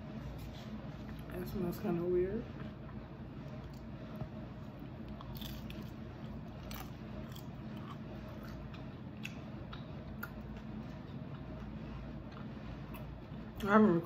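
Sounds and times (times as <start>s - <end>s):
woman biting and chewing: 5.1s - 11.5s.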